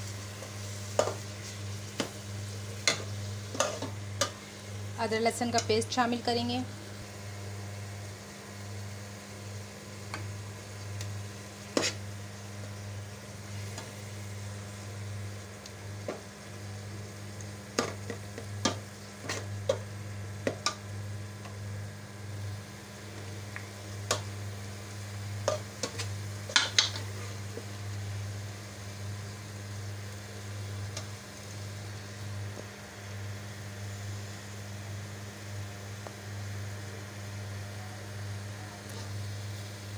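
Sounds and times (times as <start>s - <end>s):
meat sizzling in a metal pot: 0.0s - 39.9s
steady low hum: 0.0s - 39.9s.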